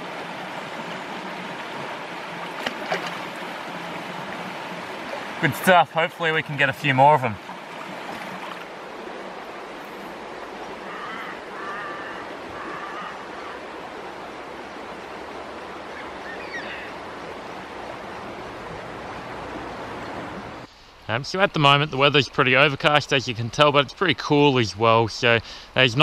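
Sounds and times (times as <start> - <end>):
river flowing over rocks: 0.0 - 6.0, 6.8 - 20.7.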